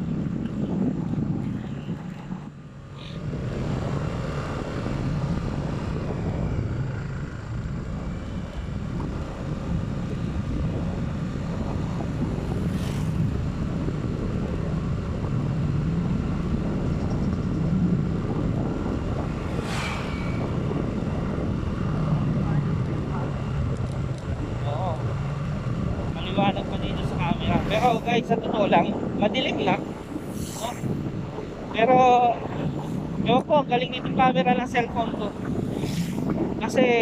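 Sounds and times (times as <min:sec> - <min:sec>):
vehicle engine and road rumble: 0:00.0 - 0:37.0
hissing whooshes: 0:12.4 - 0:13.4, 0:18.6 - 0:22.1, 0:29.8 - 0:31.2, 0:35.3 - 0:36.6.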